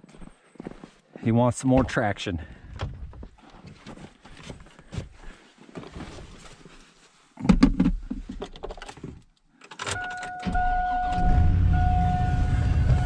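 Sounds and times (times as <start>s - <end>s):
truck engine starting and idling: 9.9s - 13.0s
warning chime: 10.0s - 13.0s.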